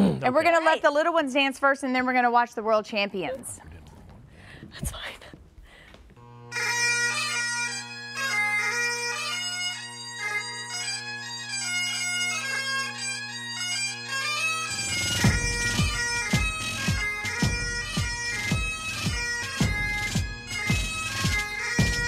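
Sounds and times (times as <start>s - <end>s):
bagpipe music: 6.2s - 22.0s
deep drum beat: 14.7s - 22.0s.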